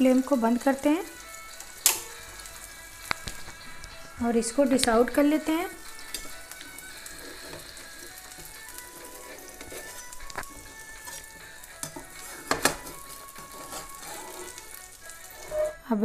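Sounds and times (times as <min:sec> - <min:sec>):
oil sizzling in frying pan: 0:00.0 - 0:15.9
spatula scraping and knocking pan: 0:05.9 - 0:15.8.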